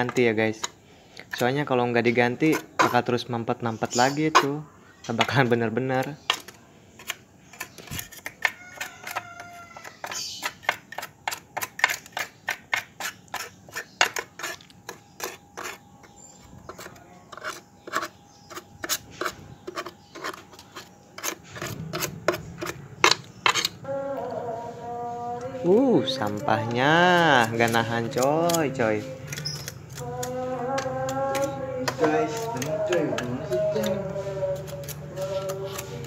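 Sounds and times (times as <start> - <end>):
metal tool scraping metal pan: 9.8 - 23.8.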